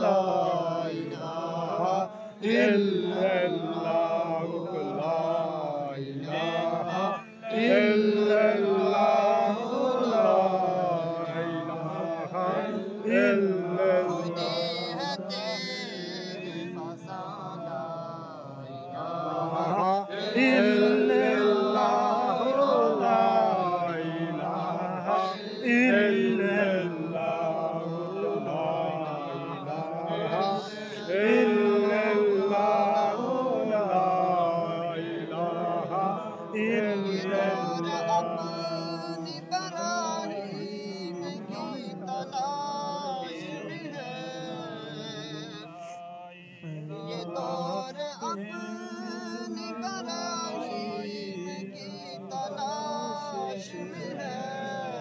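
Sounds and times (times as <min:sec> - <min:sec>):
man chanting: 0:00.0 - 0:55.0.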